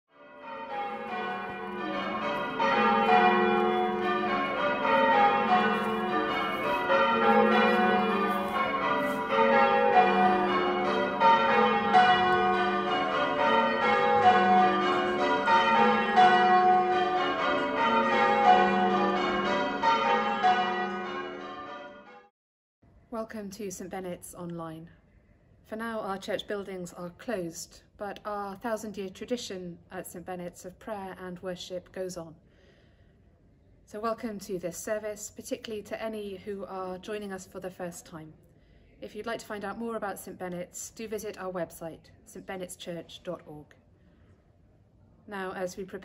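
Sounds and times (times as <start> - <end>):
church bells ringing changes: 0.1 - 22.3.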